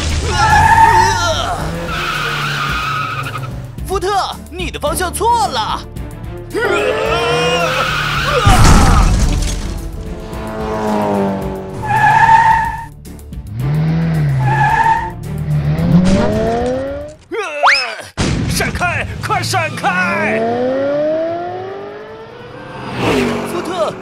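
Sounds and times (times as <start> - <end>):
background music: 0.0 - 17.5
tyre squeals: 0.3 - 3.5, 6.7 - 8.6, 11.8 - 12.9, 14.4 - 15.2
cartoon engines revving: 6.6 - 12.9, 19.7 - 24.0.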